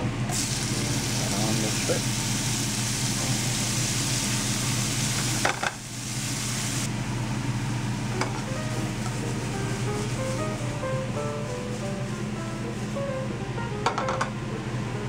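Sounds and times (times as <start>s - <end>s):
shrimp sizzling in hot oil: 0.3s - 6.9s.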